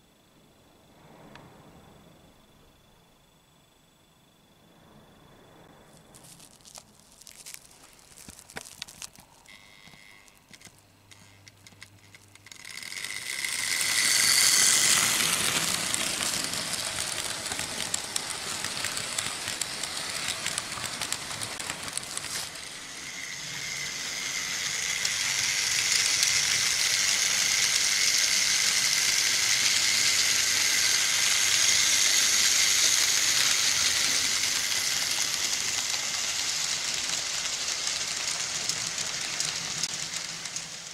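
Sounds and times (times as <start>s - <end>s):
scattered clicks: 6.7s - 40.9s
model train wheels clattering on rails: 8.2s - 40.9s.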